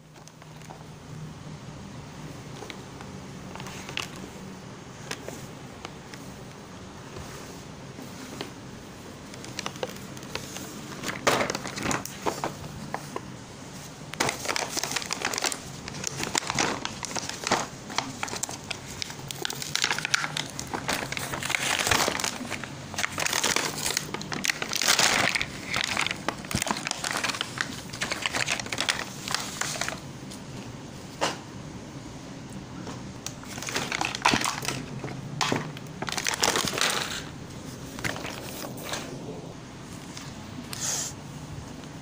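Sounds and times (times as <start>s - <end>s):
plastic packaging crinkling: 3.4s - 4.3s, 9.2s - 13.3s, 14.1s - 30.4s, 33.3s - 39.0s.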